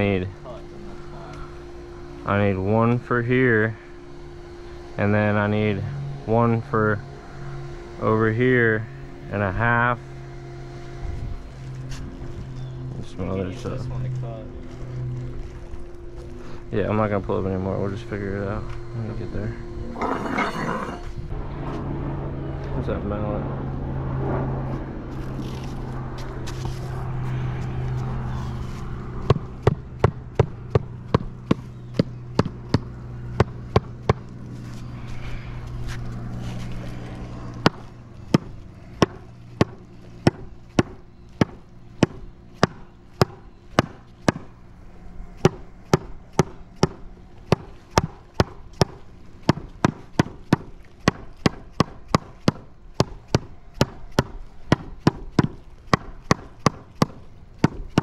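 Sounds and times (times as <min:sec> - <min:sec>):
low steady hum: 0:00.0 - 0:58.0
rubber mallet tapping stone: 0:45.4 - 0:58.0.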